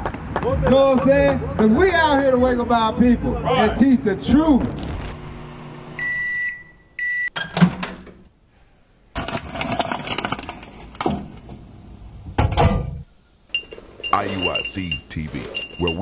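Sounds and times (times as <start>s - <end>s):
microwave oven beeping: 5.4s - 7.4s, 13.5s - 16.0s.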